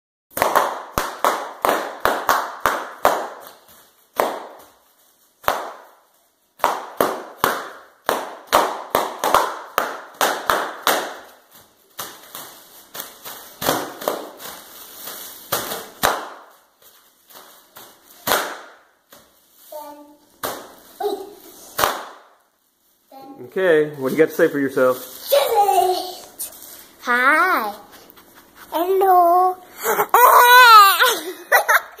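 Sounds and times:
bubble wrap popping: 0.3 - 19.7, 21.7 - 22.6.

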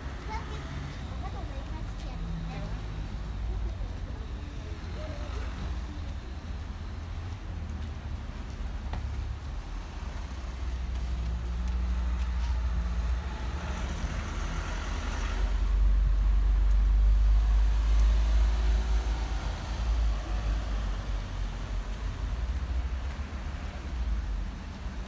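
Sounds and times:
low traffic rumble: 0.0 - 25.0
car passing: 7.8 - 25.0.

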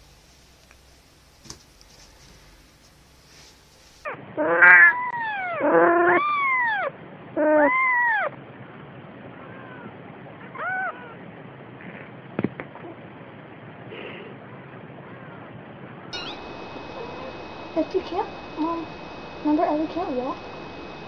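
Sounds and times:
cat meowing: 4.4 - 8.3, 9.4 - 11.2.

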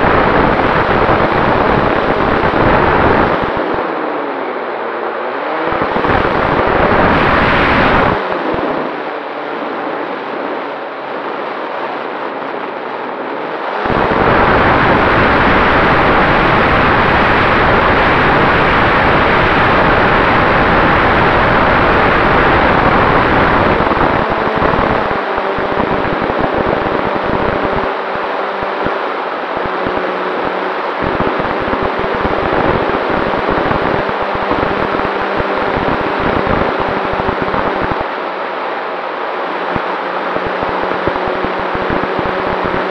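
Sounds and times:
wind rush on microphone: 0.0 - 42.9.

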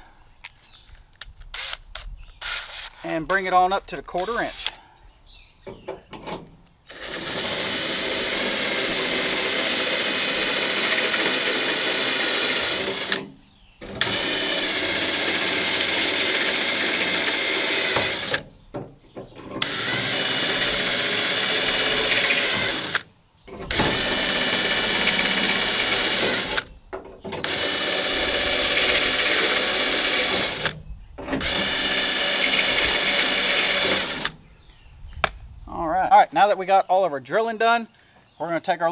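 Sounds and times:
cordless drill motor whine: 6.9 - 13.2, 14.0 - 18.5, 19.6 - 23.0, 23.7 - 26.7, 27.4 - 30.8, 31.4 - 34.3.

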